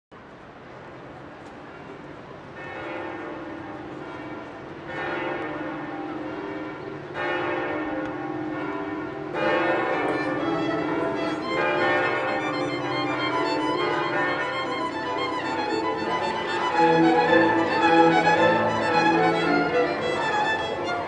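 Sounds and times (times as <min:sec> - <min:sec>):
church bells ringing: 0:00.8 - 0:21.0.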